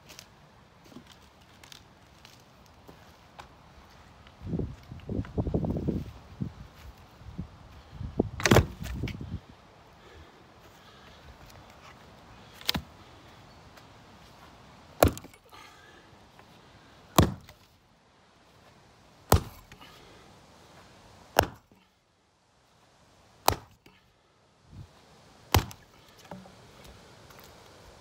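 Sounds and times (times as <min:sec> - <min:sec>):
axe chopping into timber: 0:08.4 - 0:09.0, 0:12.6 - 0:12.9, 0:15.0 - 0:15.4, 0:17.2 - 0:17.7, 0:19.3 - 0:19.8, 0:21.3 - 0:21.8, 0:23.4 - 0:23.9, 0:25.5 - 0:26.6.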